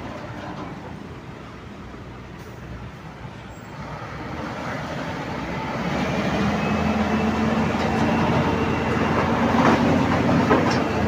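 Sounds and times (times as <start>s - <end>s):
diesel truck engine under load: 0.0s - 11.0s
trailer wheels and frame rattling: 5.8s - 11.0s.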